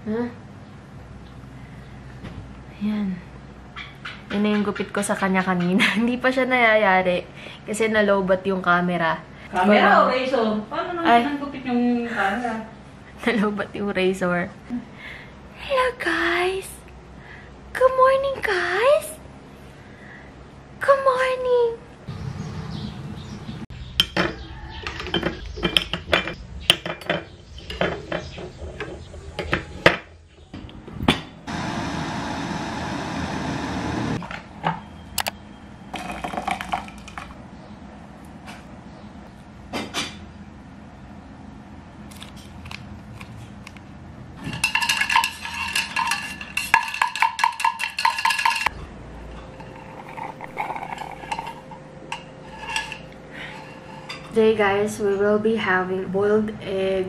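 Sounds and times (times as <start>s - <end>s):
spoon and dishes clinking: 44.4s - 48.7s, 49.3s - 54.4s
spoon stirring in metal tumbler: 44.4s - 48.7s, 49.3s - 54.4s.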